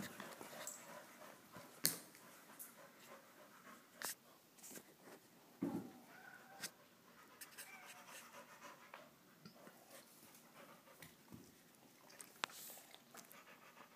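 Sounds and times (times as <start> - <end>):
dog panting: 0.0 - 4.5, 6.7 - 11.3, 12.0 - 13.9.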